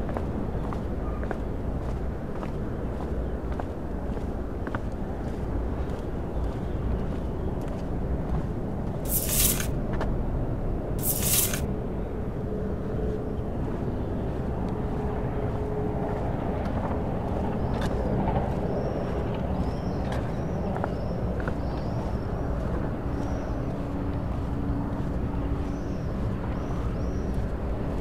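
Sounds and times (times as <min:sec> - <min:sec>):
hissing scrapes: 0:09.1 - 0:09.7, 0:11.0 - 0:11.6.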